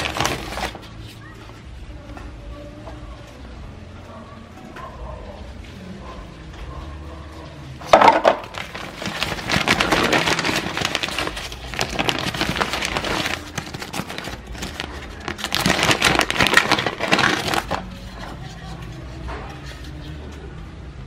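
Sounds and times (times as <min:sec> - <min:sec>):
plastic bag crinkling: 0:00.0 - 0:00.9, 0:07.9 - 0:18.9.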